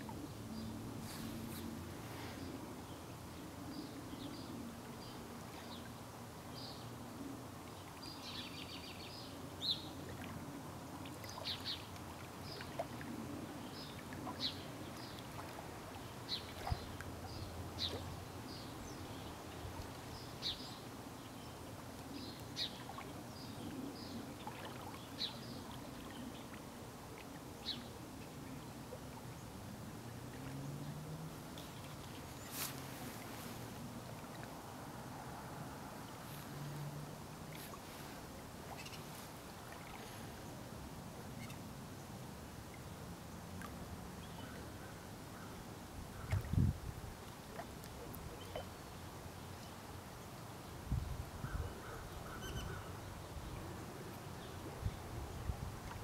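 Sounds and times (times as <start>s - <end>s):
lake waves lapping: 10.0s - 20.3s, 21.6s - 40.8s.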